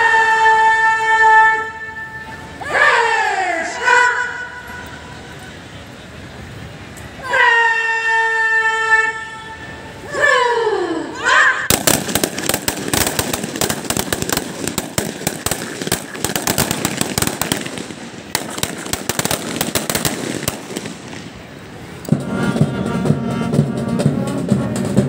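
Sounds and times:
rifles firing blank volleys: 0:11.7 - 0:22.1
music: 0:22.1 - 0:25.0.

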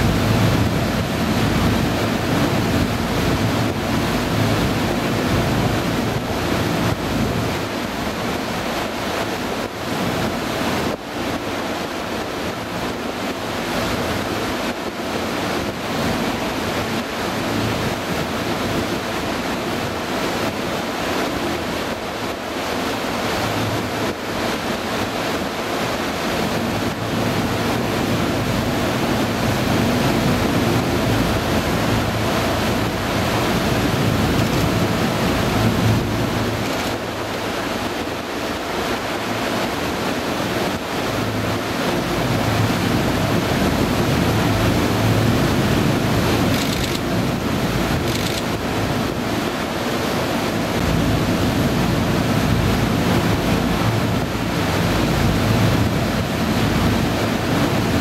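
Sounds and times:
low engine hum: 0:00.0 - 0:58.0
rushing water: 0:00.0 - 0:58.0.

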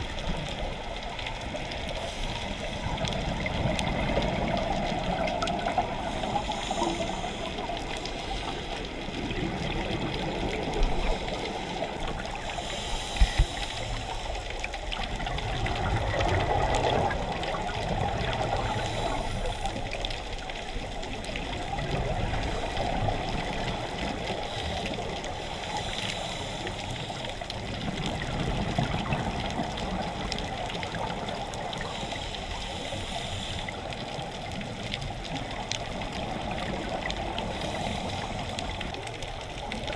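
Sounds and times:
muffled underwater noise: 0:00.0 - 0:39.9
scuba exhaust bubbles rushing: 0:00.0 - 0:39.9.

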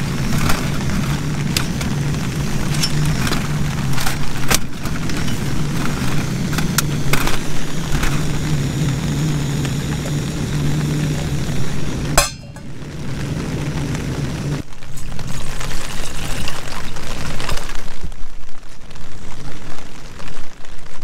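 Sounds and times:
gas stove burner hissing: 0:00.0 - 0:14.6
metallic clinks of cookware: 0:12.2 - 0:12.7.

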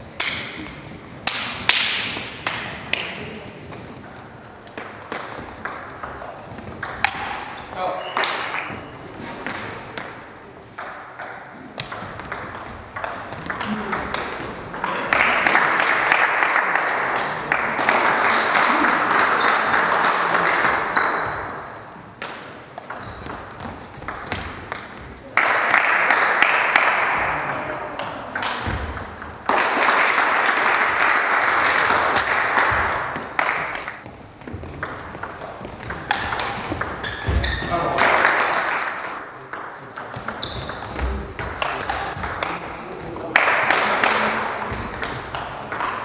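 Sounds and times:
crowd clapping: 0:14.8 - 0:21.2, 0:25.4 - 0:27.5, 0:29.5 - 0:34.0, 0:37.9 - 0:39.2, 0:43.3 - 0:44.4.

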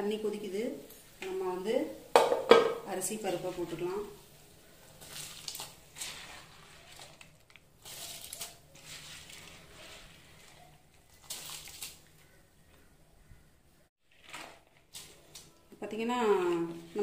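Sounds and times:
grains splashing into water: 0:05.0 - 0:12.2.

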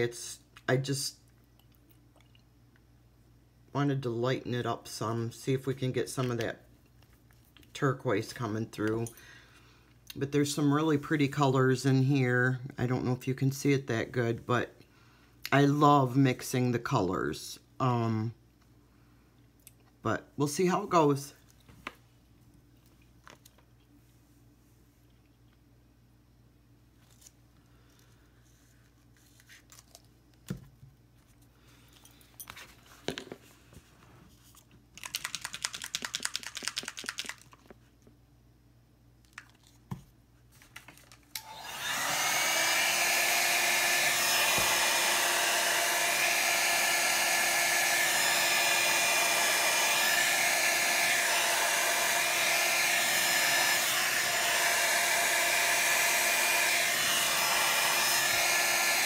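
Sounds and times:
electric blower running: 0:41.3 - 0:59.0.

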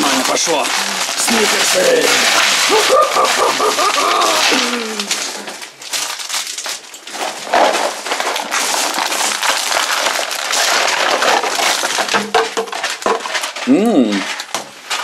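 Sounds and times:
candy wrappers crinkling: 0:00.0 - 0:15.0.

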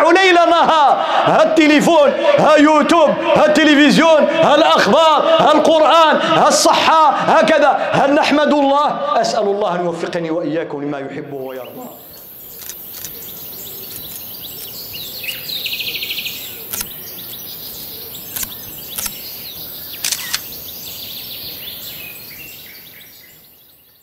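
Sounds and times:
steady outdoor hiss: 0:00.0 - 0:24.0
birds chirping: 0:11.4 - 0:24.0
camera shutter clicks: 0:12.6 - 0:13.3, 0:16.7 - 0:17.0, 0:18.3 - 0:20.6.

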